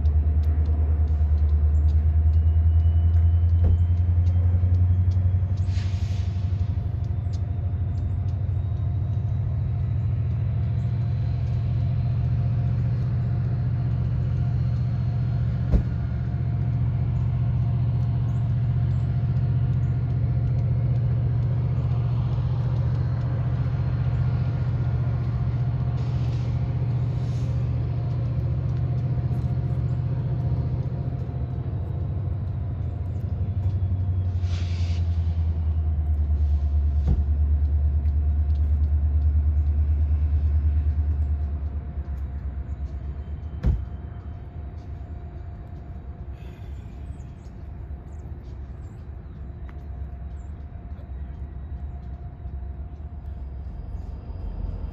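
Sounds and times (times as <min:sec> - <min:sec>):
diesel locomotive rumble: 0:00.0 - 0:54.9
air hiss bursts: 0:34.4 - 0:35.2.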